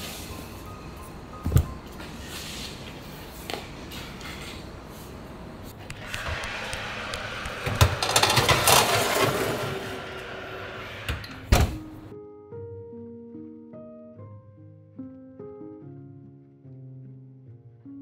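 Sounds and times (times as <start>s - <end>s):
oven door shutting: 6.0s - 12.0s
metal baking tray rattling: 7.6s - 9.8s.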